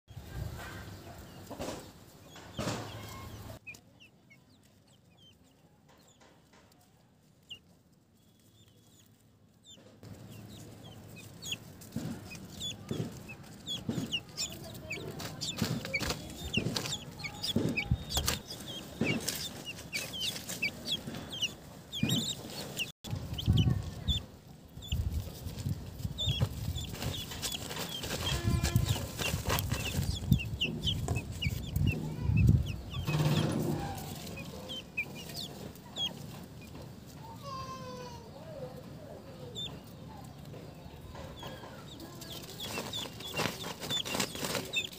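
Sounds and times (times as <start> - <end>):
guineafowl chicks peeping: 0.1 - 44.9
rustling: 4.6 - 37.3, 41.7 - 44.9.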